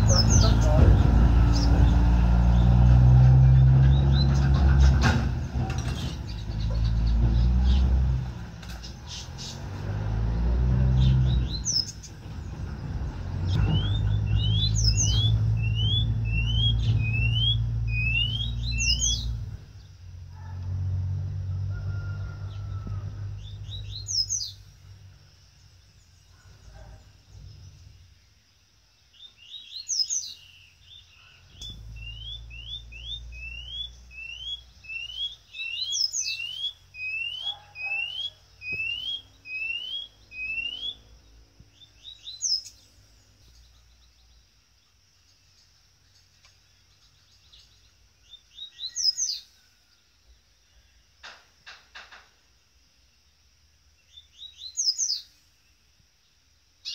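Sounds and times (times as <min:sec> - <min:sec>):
bird singing whistled notes: 0:00.0 - 0:00.9, 0:10.9 - 0:12.2, 0:13.4 - 0:19.9, 0:23.4 - 0:24.7, 0:29.1 - 0:44.4, 0:45.3 - 0:49.6, 0:54.0 - 0:55.4.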